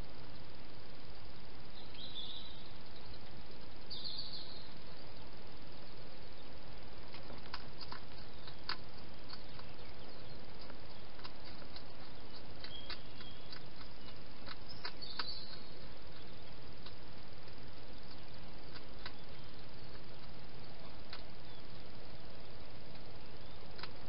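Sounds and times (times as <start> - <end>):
steady hiss: 0.0 - 24.0
hedgehog chewing and crunching: 7.0 - 24.0.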